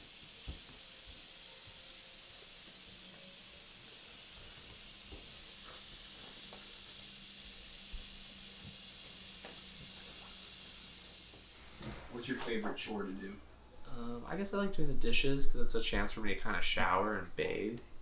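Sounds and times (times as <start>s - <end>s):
water running from tap into sink: 0.0s - 12.1s.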